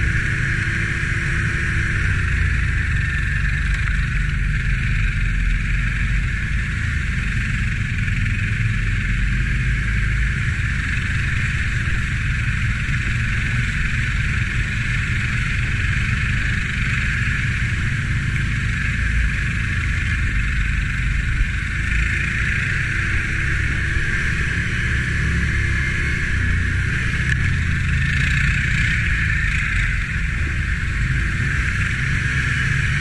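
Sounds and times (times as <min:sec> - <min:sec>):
atv engine rumbling: 0:00.0 - 0:33.0.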